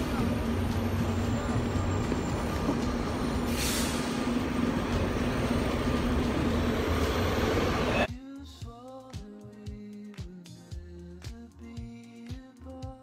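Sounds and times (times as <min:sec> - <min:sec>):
vehicle rumble: 0:00.0 - 0:08.1
music with singing: 0:08.0 - 0:13.0.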